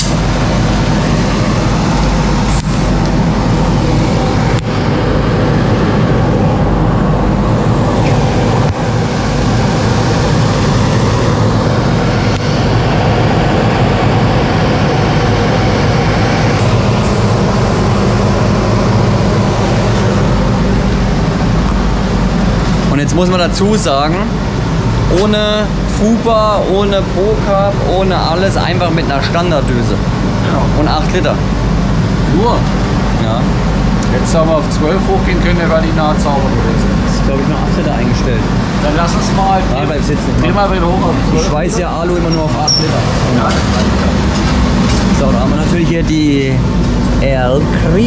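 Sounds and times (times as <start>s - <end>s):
welding equipment running: 0.0s - 48.0s.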